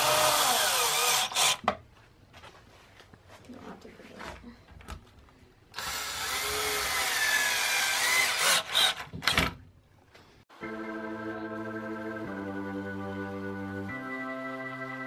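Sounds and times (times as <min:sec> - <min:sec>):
power drill driving screw into wood: 0:00.0 - 0:01.6, 0:05.8 - 0:09.5.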